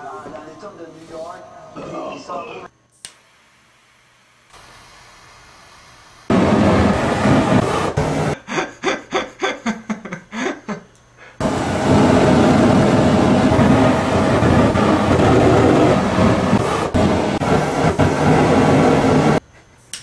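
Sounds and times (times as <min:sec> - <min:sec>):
roar of burning flame jet: 0:04.5 - 0:08.4, 0:11.4 - 0:19.4
sputtering pulses: 0:11.4 - 0:19.4.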